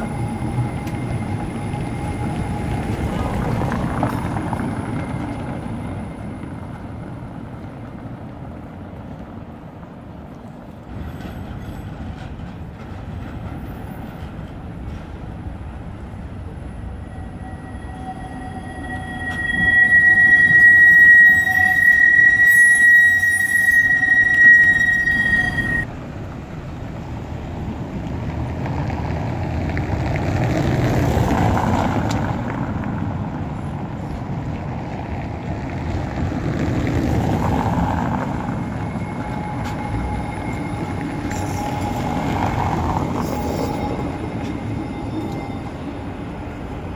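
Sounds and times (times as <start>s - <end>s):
tram rumbling past: 0.0s - 46.9s
tram wheels squealing on rails: 0.0s - 46.9s.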